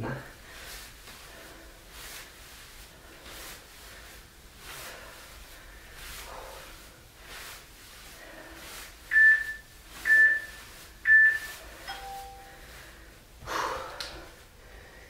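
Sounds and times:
short high timer beeps: 0:11.1 - 0:12.5
lower two-note tone: 0:11.9 - 0:12.6.

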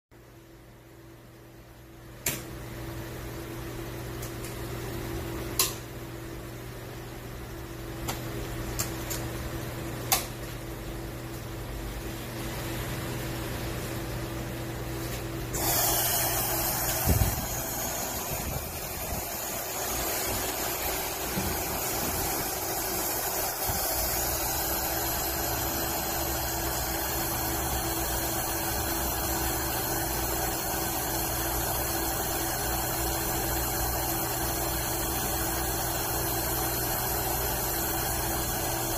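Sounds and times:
machine hum: 0:01.4 - 0:38.9
welding hiss: 0:15.6 - 0:38.9.

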